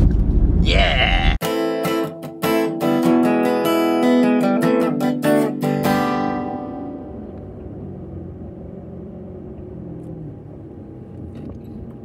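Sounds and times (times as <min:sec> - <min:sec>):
strummed acoustic guitar: 0:01.4 - 0:07.1.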